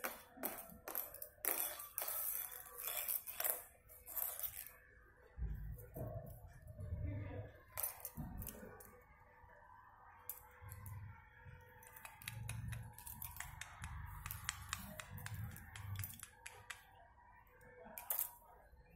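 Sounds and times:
sharp clicks and ticks: 0:11.8 - 0:16.9.

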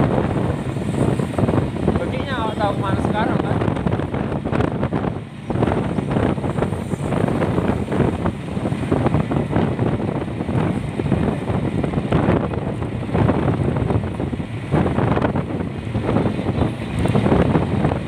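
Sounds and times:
road and traffic noise: 0:00.0 - 0:18.0
wind buffeting microphone: 0:00.0 - 0:18.0.

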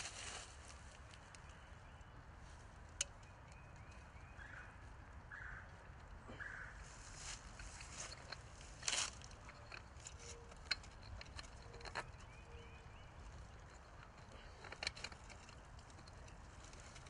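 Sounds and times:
wire handling clicks and rustles: 0:02.5 - 0:04.2, 0:05.7 - 0:17.0.

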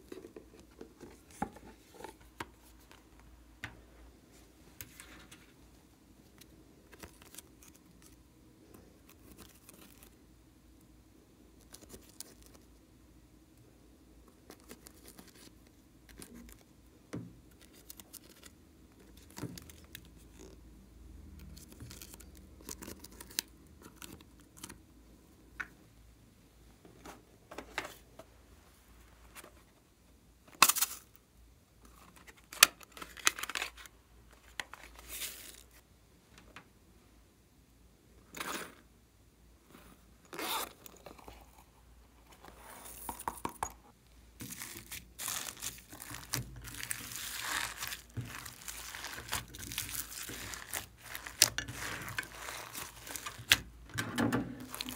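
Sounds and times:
crackles and scrapes of slime: 0:44.4 - 0:53.6, 0:54.6 - 0:54.9
hands mixing crunchy slime: 0:44.4 - 0:53.6, 0:54.6 - 0:54.9.

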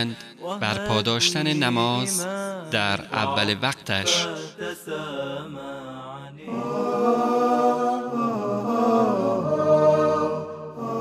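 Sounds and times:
man chanting unaccompanied: 0:00.0 - 0:06.4.

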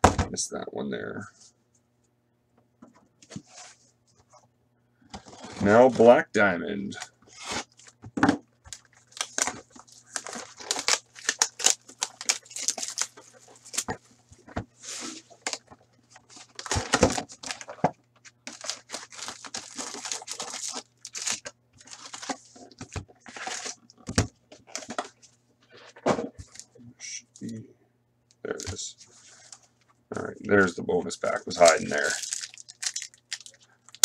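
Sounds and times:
card packs crinkling: 0:06.9 - 0:08.0, 0:08.6 - 0:25.2, 0:31.1 - 0:34.0
packaging tearing: 0:08.7 - 0:13.9, 0:16.4 - 0:17.8, 0:18.4 - 0:23.8, 0:31.5 - 0:34.0.

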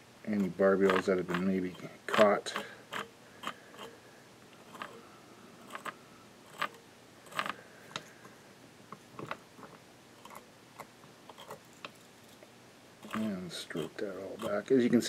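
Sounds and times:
wire brush scratching: 0:00.4 - 0:04.0, 0:04.6 - 0:05.0, 0:05.6 - 0:07.6, 0:13.0 - 0:14.8.

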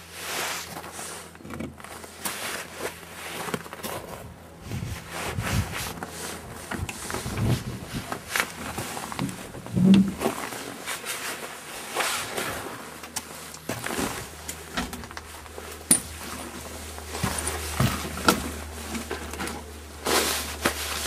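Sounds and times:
footsteps crunching in snow: 0:00.0 - 0:21.0.

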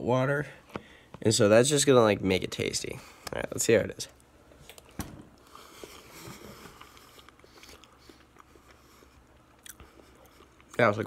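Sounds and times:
person chewing wetly: 0:04.7 - 0:10.8.

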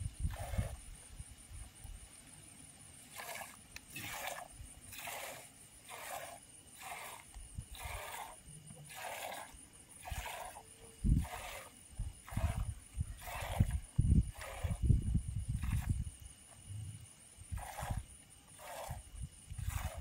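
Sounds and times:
milk squirting into a pail: 0:03.1 - 0:10.6, 0:11.2 - 0:14.9.

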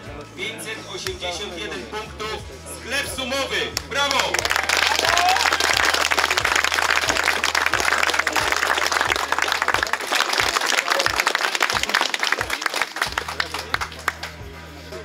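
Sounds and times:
bass beat from music: 0:00.0 - 0:15.0
crowd applauding: 0:03.8 - 0:14.6.

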